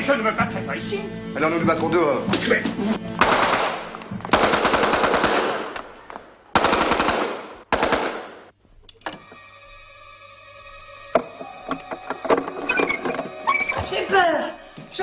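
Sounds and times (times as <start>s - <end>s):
gunfire: 3.2s - 5.9s, 6.5s - 8.5s.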